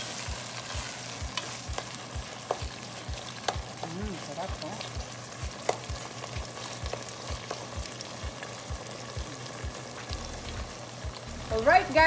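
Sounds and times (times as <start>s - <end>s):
spatula stirring: 0.0s - 10.1s
pork sizzling and crackling in a pot: 0.0s - 12.0s.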